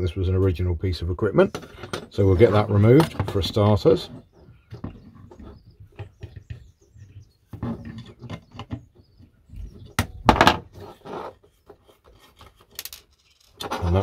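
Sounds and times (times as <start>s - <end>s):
small metal clicks and rustles: 11.7s - 14.0s.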